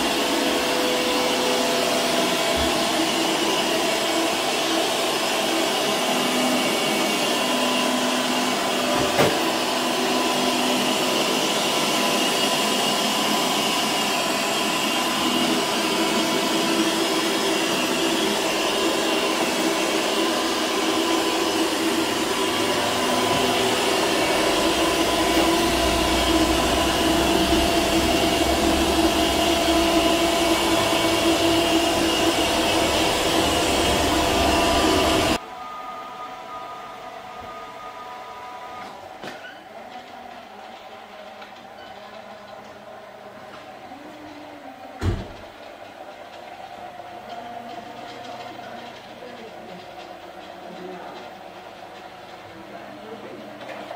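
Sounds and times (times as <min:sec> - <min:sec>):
robot vacuum whirring: 0:00.0 - 0:35.4.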